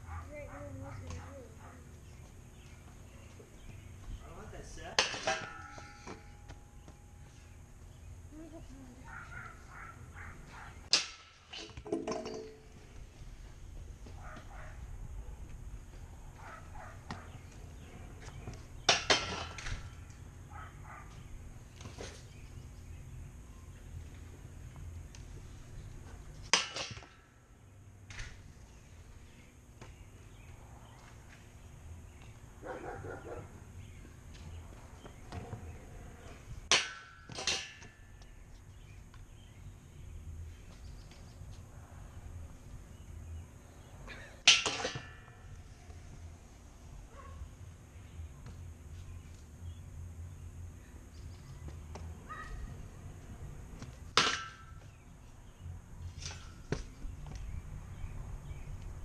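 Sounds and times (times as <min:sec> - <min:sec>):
scooter clanking on metal rail: 0:04.9 - 0:06.4, 0:10.9 - 0:12.8, 0:36.7 - 0:38.2, 0:44.4 - 0:45.5
metal rail ringing: 0:05.0 - 0:06.5.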